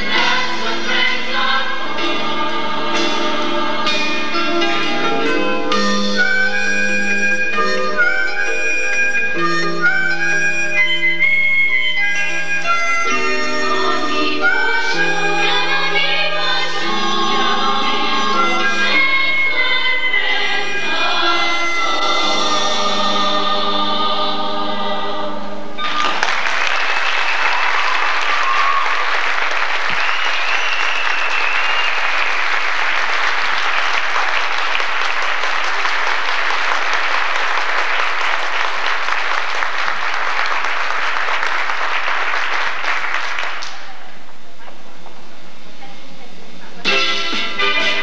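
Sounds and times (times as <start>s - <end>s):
choir singing: 0.0s - 5.4s, 13.7s - 26.0s
audience applauding: 25.8s - 44.0s.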